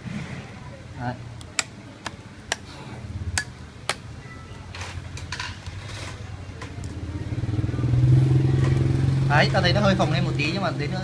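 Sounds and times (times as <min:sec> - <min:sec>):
engine low hum: 0:06.8 - 0:11.0.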